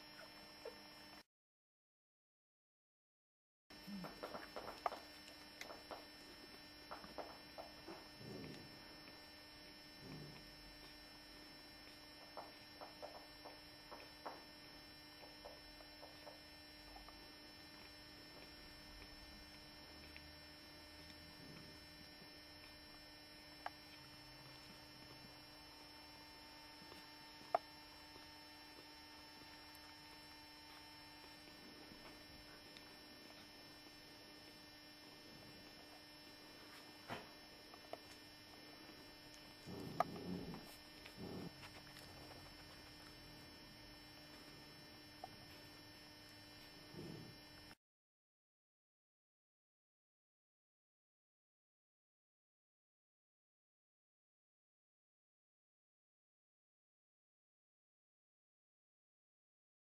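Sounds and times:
electrical hum: 0.0 - 1.3, 3.7 - 47.8.

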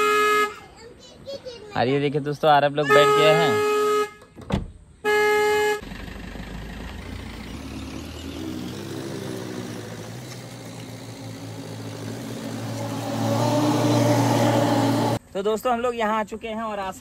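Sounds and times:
car horn toot: 0.0 - 0.6, 2.8 - 4.3, 5.0 - 5.8
car engine running: 5.8 - 15.2.

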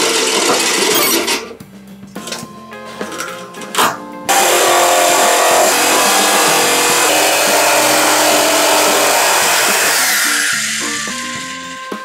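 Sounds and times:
jigsaw cutting: 0.0 - 1.0, 4.3 - 11.3
background music: 0.0 - 12.0.

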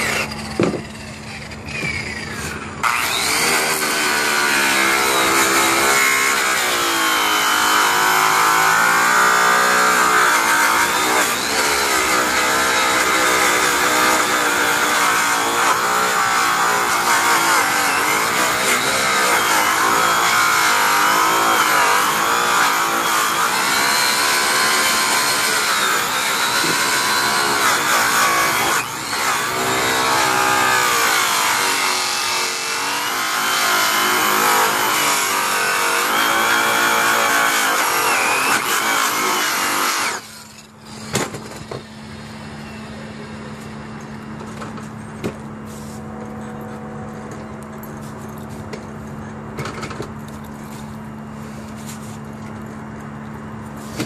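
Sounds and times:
rotary polisher whining: 0.0 - 41.1.

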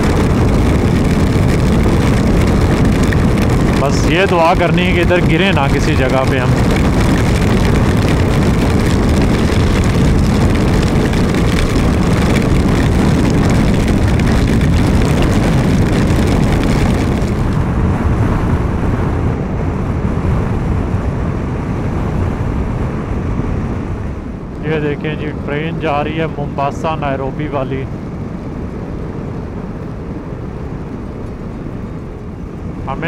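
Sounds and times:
tyres on wet road: 0.0 - 17.7
motorcycle engine: 0.0 - 19.2
wind rushing over microphone: 0.0 - 33.0.

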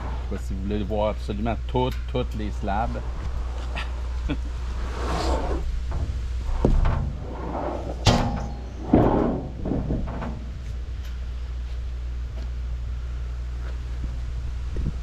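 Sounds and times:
steady low hum: 0.0 - 15.0
wooden slabs knocking and scraping: 5.0 - 10.8
sharp bangs: 5.8 - 10.6.

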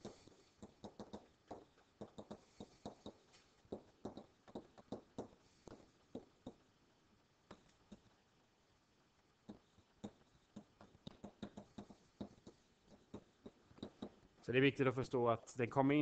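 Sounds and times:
pen tapping on writing surface: 0.6 - 6.6, 9.5 - 14.2.

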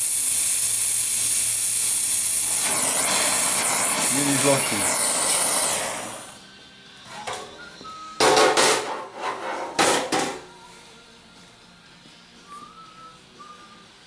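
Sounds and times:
welding torch hissing: 0.0 - 6.4
metallic knocks and clatters: 8.2 - 10.4.

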